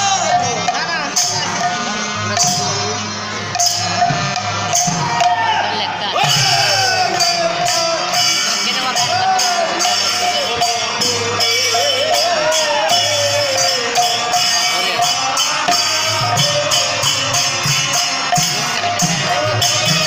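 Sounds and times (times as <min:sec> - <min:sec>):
hand drums beating: 0:00.0 - 0:20.0
harmonium melody: 0:00.0 - 0:20.0
small hand cymbals jingling: 0:06.2 - 0:20.0.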